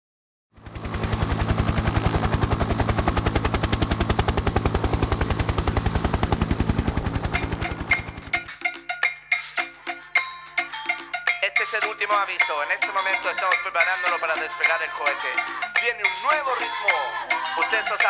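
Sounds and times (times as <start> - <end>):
rapid chopping pulse: 0.8 - 8.6.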